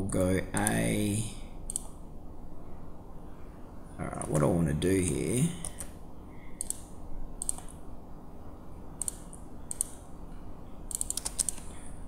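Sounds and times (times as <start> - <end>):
computer mouse clicks: 1.7 - 2.0, 5.6 - 6.0, 6.6 - 7.8, 9.0 - 10.0, 10.9 - 11.8
keyboard keys clicking: 10.9 - 11.7.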